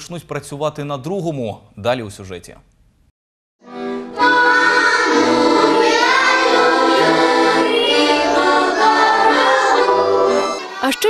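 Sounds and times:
accordion playing: 3.6s - 10.8s
children singing: 4.1s - 11.0s.

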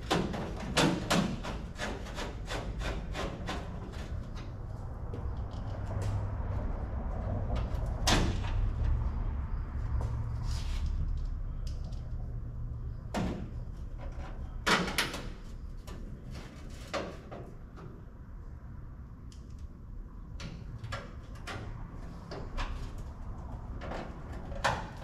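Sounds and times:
sharp clicks and knocks: 0.0s - 6.3s.

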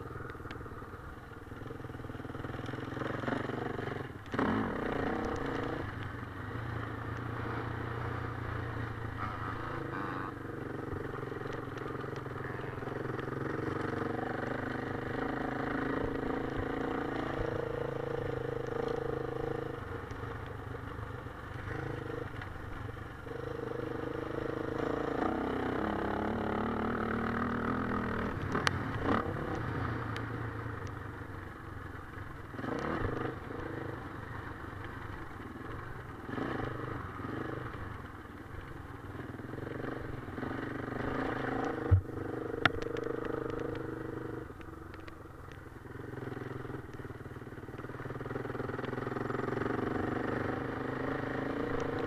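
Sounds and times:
motocross bike engine revving: 2.6s - 5.9s, 7.4s - 19.7s, 23.2s - 30.1s.

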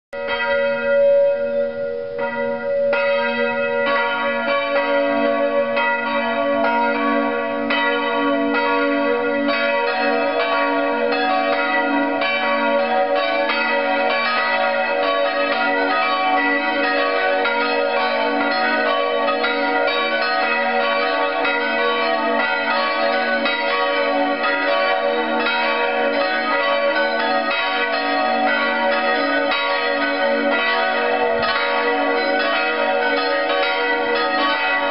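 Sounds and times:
church bells pealing: 0.2s - 34.9s.

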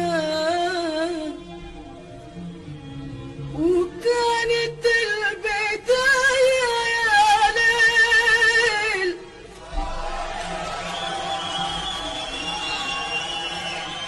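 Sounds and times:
woman singing: 0.0s - 1.6s, 3.5s - 9.3s.

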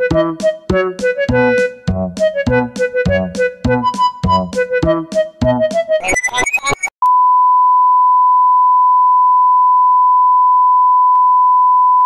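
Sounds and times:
fast jaunty music: 0.0s - 6.9s.

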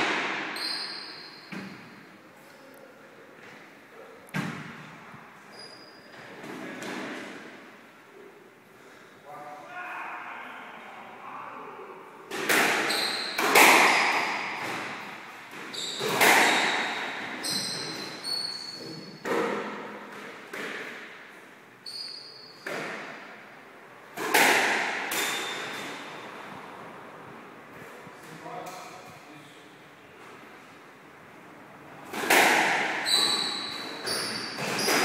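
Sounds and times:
squash ball smacking rackets and walls: 0.0s - 2.0s, 12.3s - 23.5s, 24.1s - 26.2s, 32.0s - 35.0s
shoes squeaking on court floor: 0.6s - 2.0s, 5.4s - 6.8s, 12.7s - 20.3s, 21.8s - 23.1s, 33.0s - 35.0s.

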